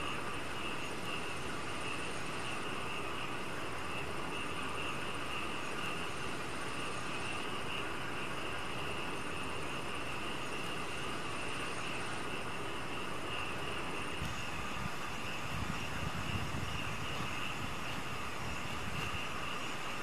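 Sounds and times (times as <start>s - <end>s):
insect chorus: 0.0s - 20.0s.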